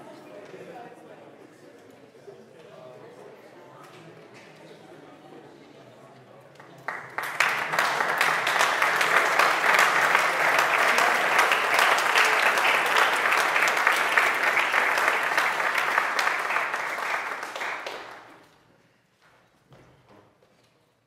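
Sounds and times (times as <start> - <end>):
audience applauding: 6.8 - 18.4.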